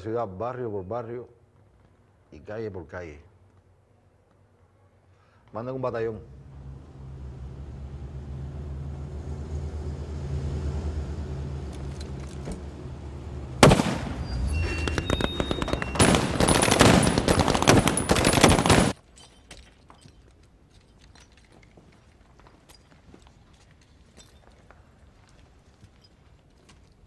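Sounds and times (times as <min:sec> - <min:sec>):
low steady rumble: 0:05.9 - 0:14.8
machine-gun fire: 0:13.6 - 0:19.0.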